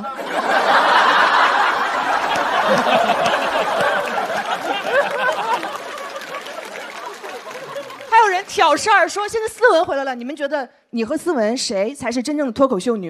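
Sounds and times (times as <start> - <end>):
audience laughing: 0.0 - 8.8
audience clapping: 0.4 - 9.9.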